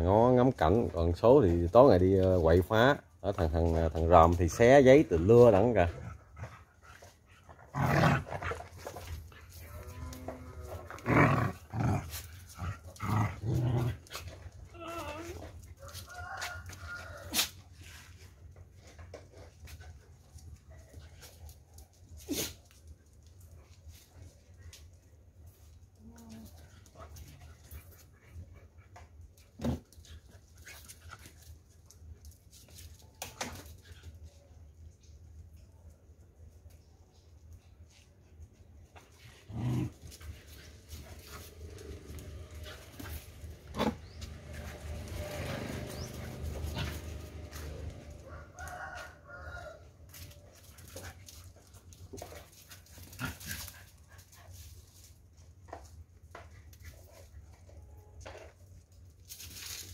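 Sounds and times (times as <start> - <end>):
dogs scuffling: 37.8 - 59.9.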